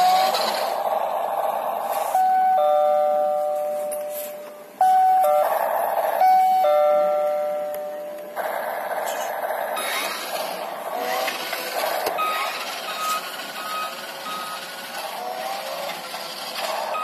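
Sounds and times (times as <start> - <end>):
buzzy electronic engine sound: 0.0 - 2.6, 8.3 - 17.0
two-tone ding-dong chime: 2.2 - 5.5, 6.2 - 8.2.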